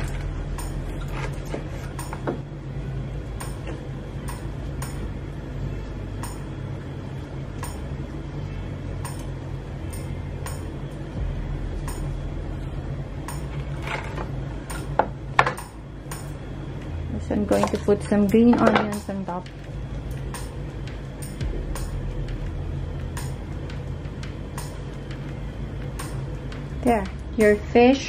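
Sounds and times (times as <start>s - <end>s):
steady low hum: 0.0s - 28.0s
regular ticking: 2.8s - 5.4s, 8.9s - 28.0s.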